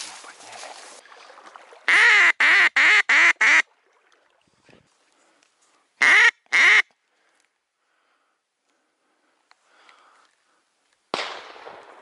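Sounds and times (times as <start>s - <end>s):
duck quacking: 1.9s - 3.6s, 6.0s - 6.8s.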